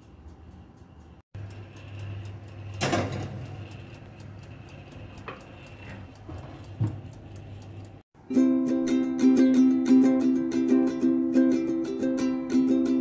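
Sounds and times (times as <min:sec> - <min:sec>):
steady low hum: 0:00.0 - 0:08.0
oven timer ticking: 0:00.0 - 0:08.7.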